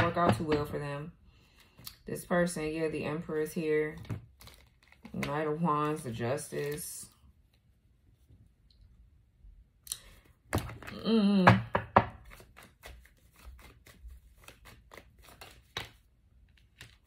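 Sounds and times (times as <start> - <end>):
person humming: 10.9 - 11.7.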